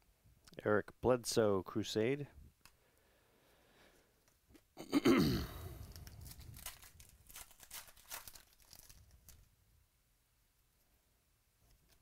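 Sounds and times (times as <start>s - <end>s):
foil wrapper crinkling and tearing: 5.8s - 9.5s.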